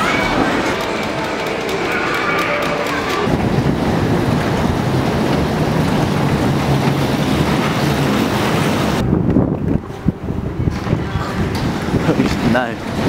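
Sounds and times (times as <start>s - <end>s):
amusement arcade din: 0.0s - 8.8s.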